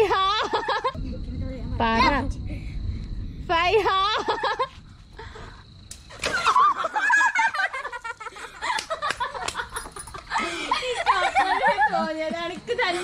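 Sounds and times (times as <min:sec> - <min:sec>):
high-pitched laughter: 0:00.0 - 0:01.0, 0:03.9 - 0:04.8, 0:06.3 - 0:12.3
water balloon bursting: 0:05.9 - 0:06.8.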